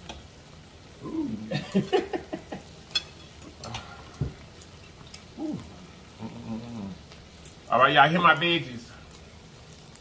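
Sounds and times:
pleased humming: 0:01.0 - 0:01.7, 0:05.3 - 0:07.2.

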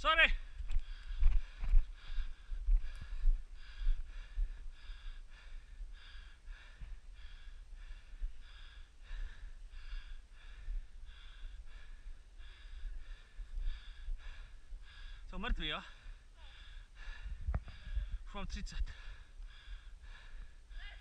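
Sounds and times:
rapid heavy panting: 0:00.8 - 0:18.2, 0:18.9 - 0:21.0.

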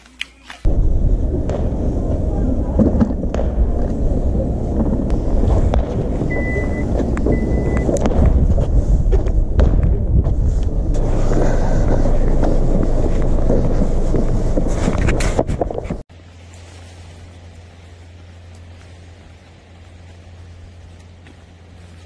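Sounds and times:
wind buffeting microphone: 0:00.7 - 0:16.1
short high beeps: 0:06.3 - 0:07.9.

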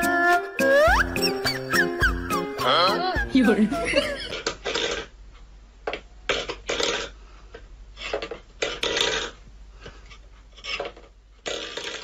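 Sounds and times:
metal bowl scraping on wooden floor: 0:08.0 - 0:09.4, 0:10.5 - 0:12.0.

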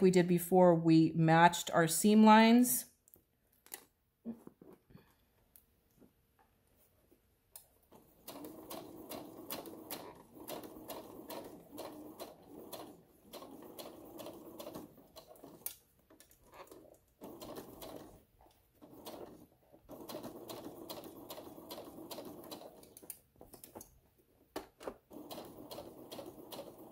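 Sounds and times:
sewing machine stitching: 0:07.9 - 0:23.9, 0:24.8 - 0:26.9.

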